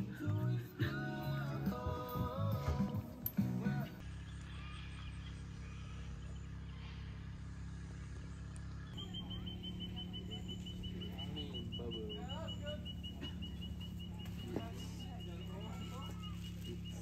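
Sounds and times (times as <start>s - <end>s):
steady low hum: 0.0s - 17.0s
faint bird chirps: 8.1s - 17.0s.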